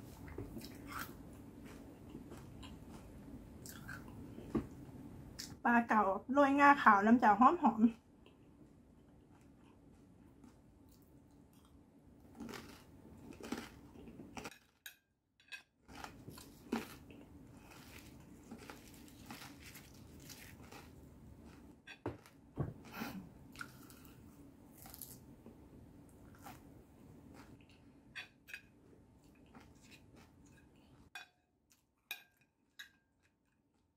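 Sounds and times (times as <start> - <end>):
crunchy food chewing: 0.2 - 4.2, 9.3 - 14.5, 15.9 - 25.2.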